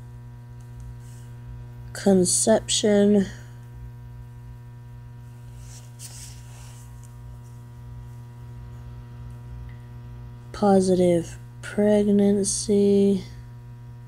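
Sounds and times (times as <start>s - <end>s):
electrical mains hum: 0.0s - 14.0s
faint rustle: 5.4s - 7.5s.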